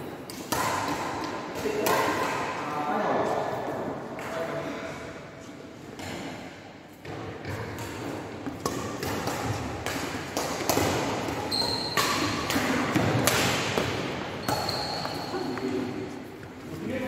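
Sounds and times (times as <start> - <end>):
rackets hitting shuttlecock: 0.2 - 2.6, 6.0 - 15.7
shoe squeaks on court floor: 11.5 - 12.3, 14.4 - 15.7.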